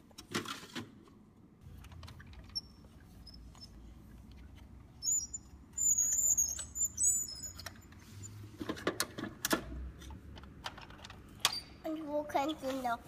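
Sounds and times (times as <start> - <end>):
plastic toy squeaking: 5.0 - 7.8.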